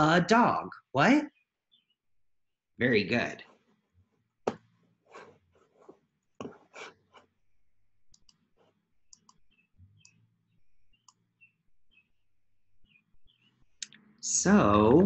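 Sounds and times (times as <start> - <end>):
computer mouse clicks: 8.1 - 10.2, 10.9 - 11.2.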